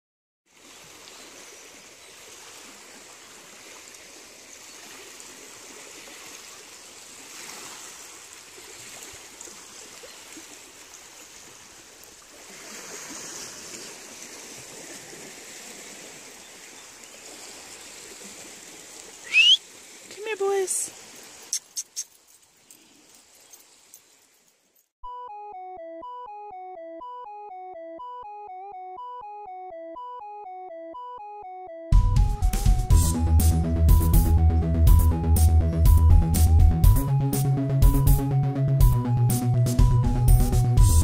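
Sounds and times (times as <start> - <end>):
small waves lapping on rocks: 0.5 - 21.5
rising whistle: 19.3 - 19.6.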